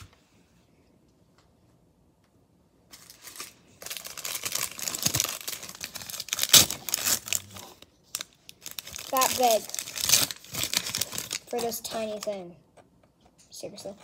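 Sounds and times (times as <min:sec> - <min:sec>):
plastic packet crinkling and tearing: 0:02.9 - 0:12.4.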